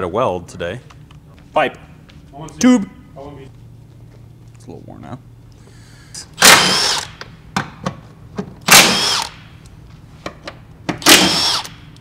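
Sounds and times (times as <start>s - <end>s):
impact wrench bursts: 6.4s - 7.3s, 8.6s - 9.5s, 11.0s - 12.0s.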